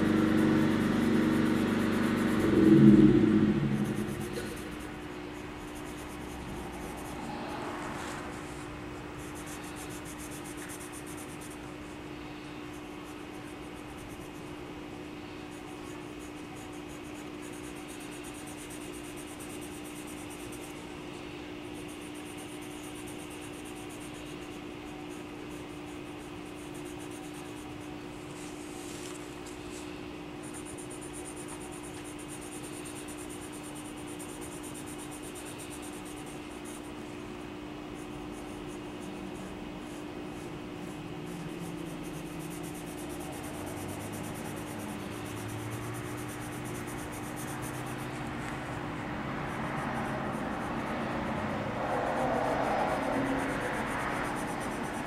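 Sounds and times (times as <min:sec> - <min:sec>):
pencil scratching on paper: 0:00.0 - 0:55.0
steady low hum: 0:00.0 - 0:55.0.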